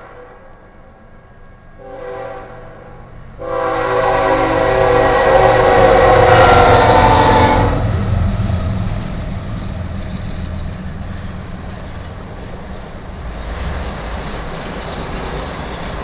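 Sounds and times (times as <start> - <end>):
locomotive horn: 0.0 - 0.7, 1.8 - 8.0
freight train rumbling past: 0.0 - 16.0.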